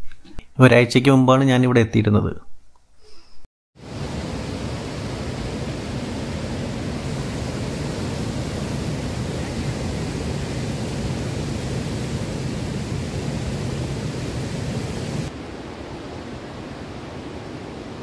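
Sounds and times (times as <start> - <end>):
waterfall rushing: 3.8 - 18.0.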